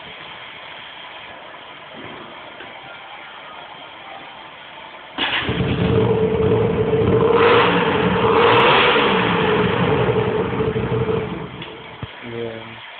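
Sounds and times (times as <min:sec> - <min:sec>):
motorcycle engine without exhaust: 0:05.2 - 0:12.2.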